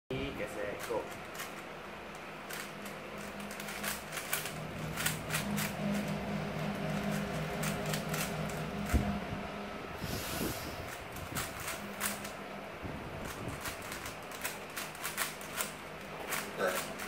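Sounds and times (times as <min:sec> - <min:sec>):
low hum: 0:01.1 - 0:17.0
puzzle cube clicking: 0:02.5 - 0:05.8, 0:13.5 - 0:17.0.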